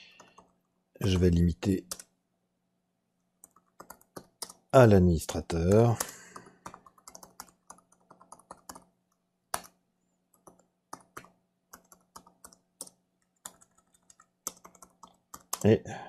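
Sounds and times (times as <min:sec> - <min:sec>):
computer keyboard typing: 0:00.0 - 0:00.7, 0:01.8 - 0:02.2, 0:03.4 - 0:04.7, 0:05.6 - 0:15.8.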